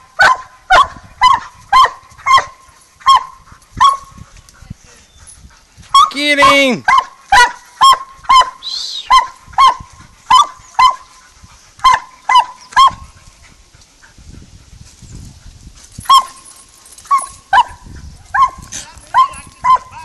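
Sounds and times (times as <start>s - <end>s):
dog barking sharply: 0.2s - 4.1s, 6.0s - 11.0s.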